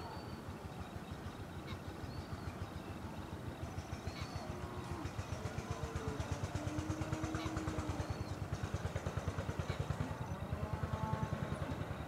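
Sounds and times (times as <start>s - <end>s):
small engine running: 2.6s - 12.0s.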